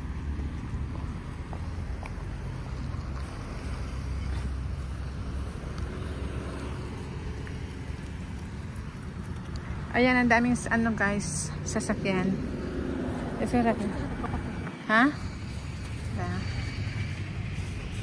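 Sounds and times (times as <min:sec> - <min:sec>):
car driving past: 0:11.4 - 0:18.0.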